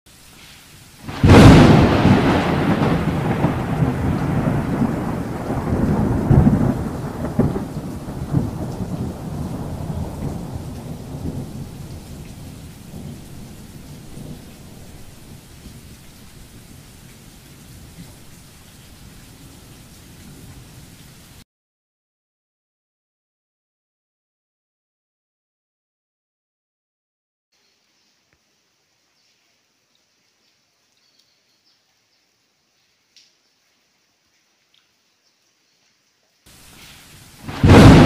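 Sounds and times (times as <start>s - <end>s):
steady rain: 0.1s - 21.4s, 27.6s - 38.0s
thunder rumbling: 1.0s - 16.0s, 37.3s - 38.0s.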